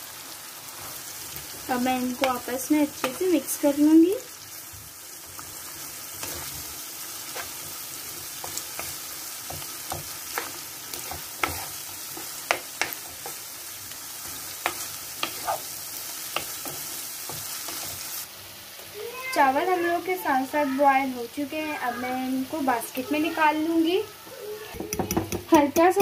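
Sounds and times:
masala sizzling in oil: 0.0 - 26.0
wooden spatula scraping pan: 6.2 - 6.7, 7.3 - 7.8, 8.4 - 13.4, 14.6 - 15.7.

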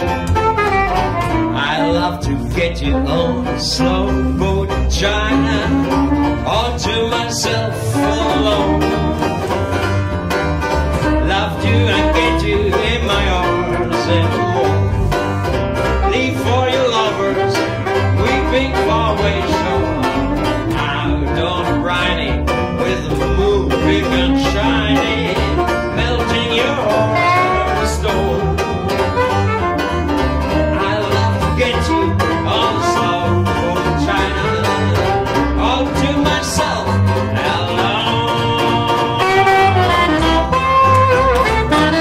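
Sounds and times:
banjo picking and strumming: 0.0 - 42.0
double bass plucking: 0.0 - 42.0
soprano saxophone: 0.2 - 2.1, 27.0 - 28.2, 28.8 - 30.8, 39.2 - 42.0.

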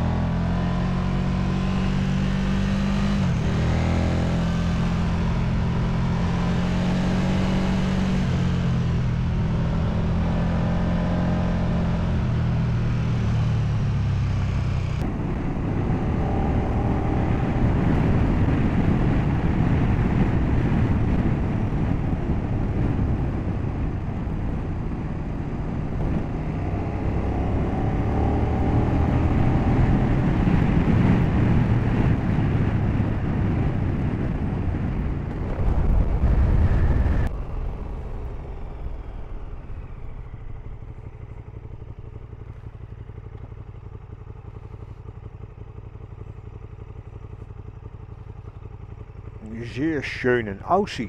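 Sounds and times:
motorcycle engine running: 0.0 - 51.0
wind rush: 15.0 - 40.9
motorcycle engine idling: 37.3 - 51.0.

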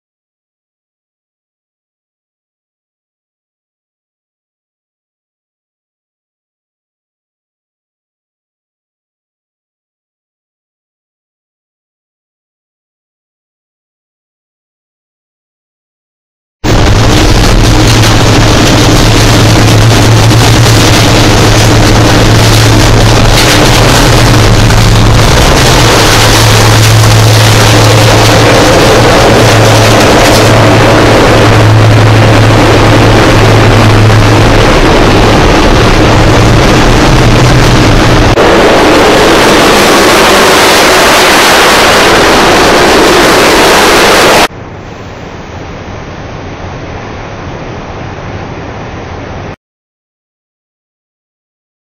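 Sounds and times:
low engine drone: 16.6 - 49.6
wind and road noise rushing: 16.6 - 49.6.

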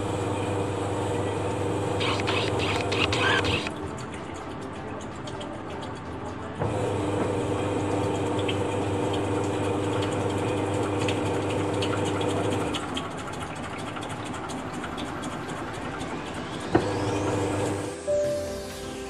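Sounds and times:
washing machine motor humming: 0.0 - 19.0
fast rattling ticks: 12.3 - 16.8.

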